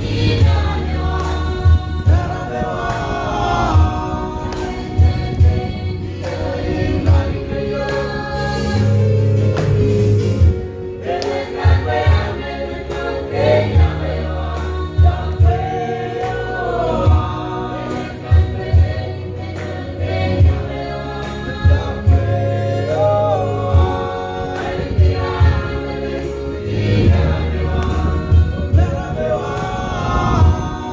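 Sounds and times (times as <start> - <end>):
low bass line: 0.0 - 30.9
mixed choir singing a hymn: 0.0 - 30.9.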